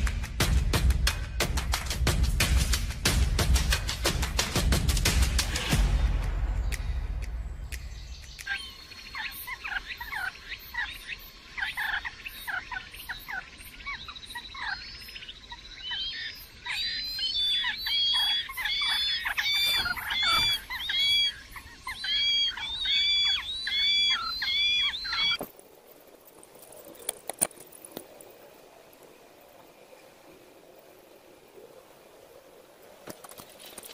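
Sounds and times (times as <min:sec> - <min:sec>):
nestling birds chirping: 0:06.7 - 0:33.9
arched cheeping calls: 0:08.3 - 0:25.4.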